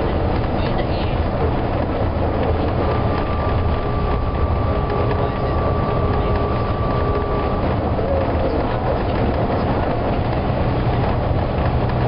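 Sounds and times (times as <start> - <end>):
bus diesel engine and road rumble: 0.0 - 12.0
faint steady whine: 2.1 - 10.1.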